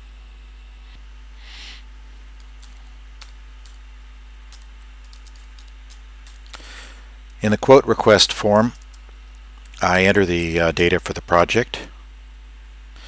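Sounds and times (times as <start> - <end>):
low hum: 0.0 - 13.0
keyboard typing: 2.4 - 3.8, 4.5 - 6.6, 8.7 - 9.0.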